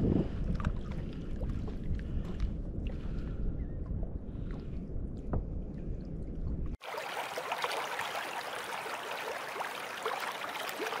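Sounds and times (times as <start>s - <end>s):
water trickling and bubbling: 0.2s - 11.0s.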